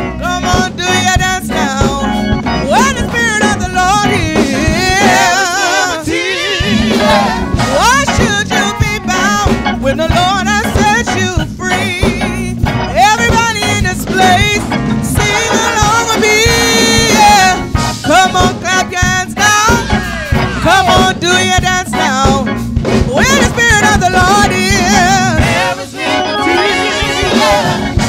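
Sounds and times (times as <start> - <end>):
musical backing: 0.0 - 28.0
group singing gospel: 0.2 - 9.6, 13.2 - 18.5, 19.7 - 22.4, 23.2 - 28.0.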